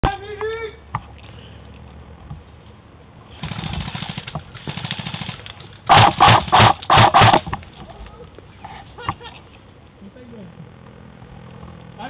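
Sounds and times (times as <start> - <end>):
airsoft gun firing full auto: 3.4 - 7.5.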